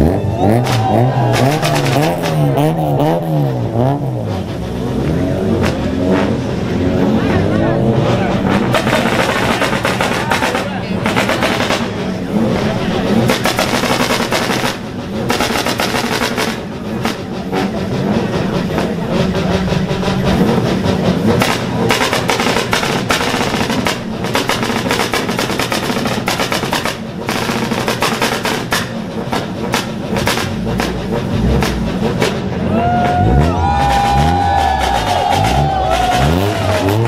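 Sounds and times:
car engine revving: 0:00.0 - 0:37.0
crowd voices: 0:00.0 - 0:37.0
exhaust crackling bangs: 0:00.6 - 0:37.0
thumping music beat: 0:08.2 - 0:37.0.

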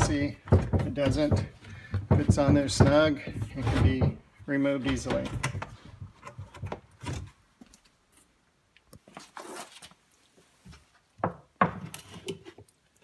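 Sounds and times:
plastic pipe knocking: 0:00.0 - 0:04.2.

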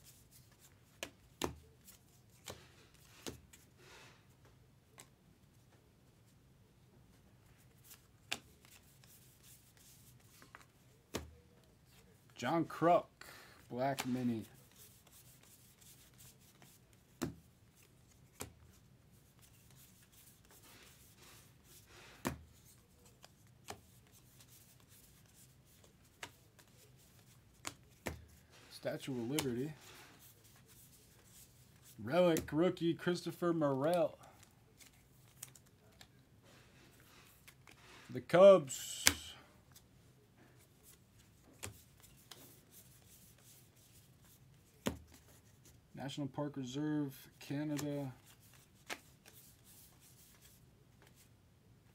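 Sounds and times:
cards rustling in hands: 0:00.0 - 0:06.4, 0:07.1 - 0:46.4, 0:47.0 - 0:51.9
sharp taps of cards: 0:01.0 - 0:01.6.

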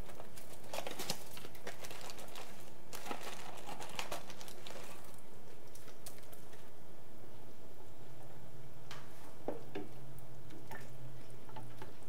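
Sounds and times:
package crinkling: 0:00.0 - 0:06.7.

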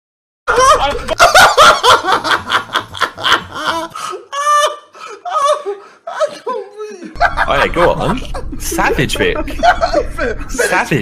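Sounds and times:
man laughing high-pitched: 0:00.5 - 0:10.8.

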